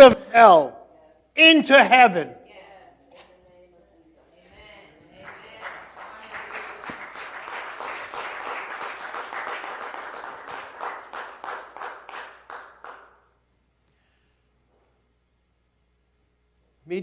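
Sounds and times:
congregation applauding: 5.2s - 13.3s.

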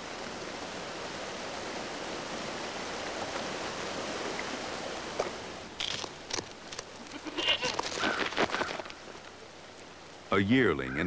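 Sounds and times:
stream rushing over rocks: 0.0s - 10.3s.

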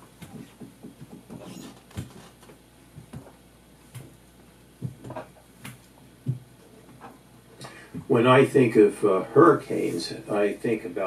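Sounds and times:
people moving about in room: 0.0s - 8.2s.

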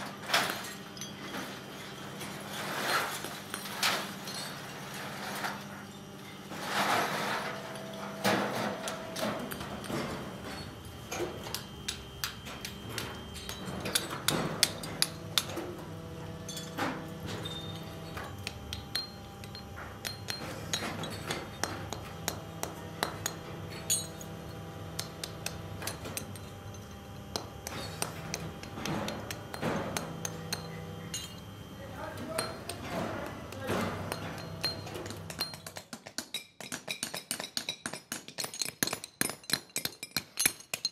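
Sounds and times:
low machine hum: 0.0s - 35.8s
hammer knocking on metal castings: 18.3s - 24.2s, 27.3s - 31.4s, 32.1s - 40.9s.

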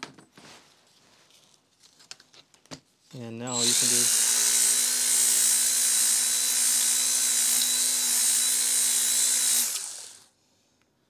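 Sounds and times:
belt sander whining on metal: 3.5s - 10.3s
tool winding down: 3.5s - 10.3s.

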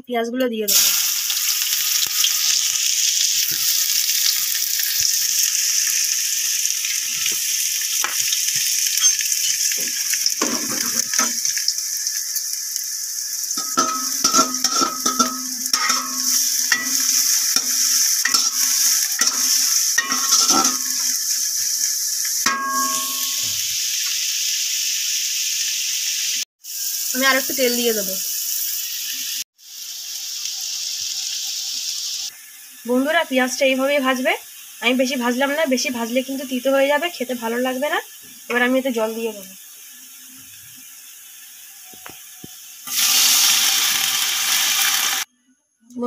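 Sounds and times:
onions sizzling in hot oil: 0.6s - 45.3s
utensil scraping and clinking pot: 13.6s - 21.2s, 22.5s - 23.6s.

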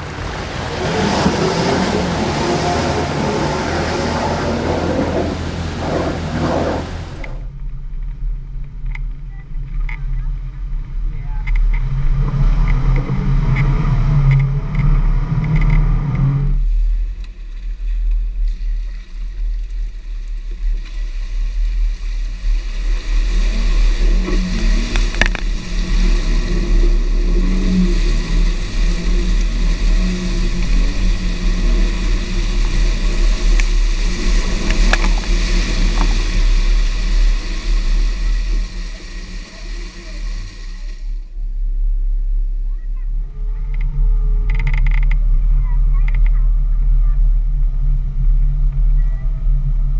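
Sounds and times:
engine revving hard: 0.0s - 7.4s.

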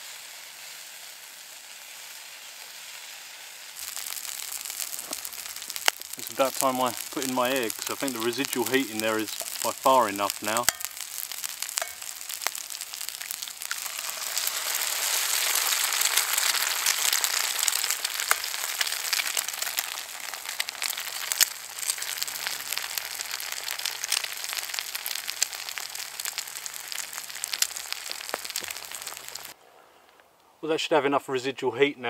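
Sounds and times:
food sizzling in a skillet: 0.0s - 29.6s
sharp pops of frying: 3.7s - 29.6s
eggs cracking: 3.8s - 29.6s.

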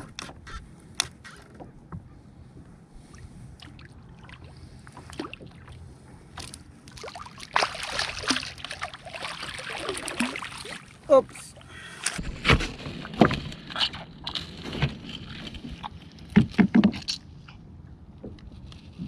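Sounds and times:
water lapping against kayak: 0.0s - 19.0s
fish splashing hard: 7.0s - 11.0s.

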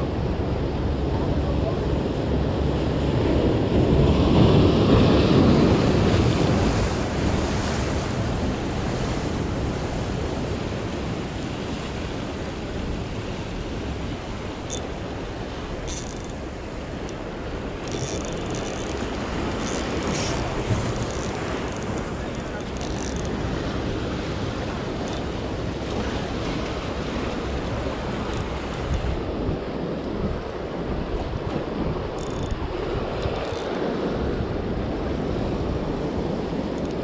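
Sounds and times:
wind buffeting microphone: 0.0s - 37.0s
surf breaking against rocks: 18.8s - 29.2s.

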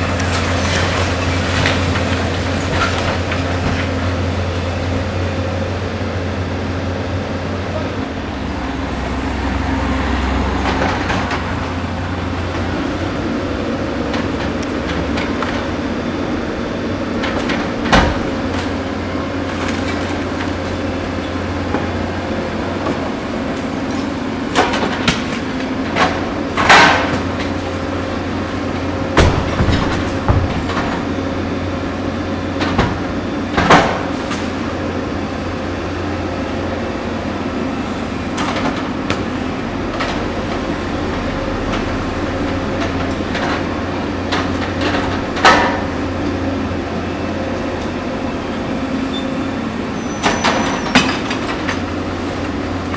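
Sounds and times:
concrete and rubble crashing: 0.0s - 4.1s, 29.0s - 31.8s
diesel excavator engine running: 0.0s - 52.9s.

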